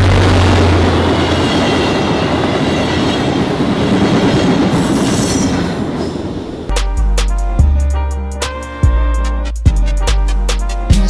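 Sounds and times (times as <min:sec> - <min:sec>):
train wheels clattering on rails: 0:00.0 - 0:06.7
diesel locomotive engine hum: 0:00.0 - 0:08.0.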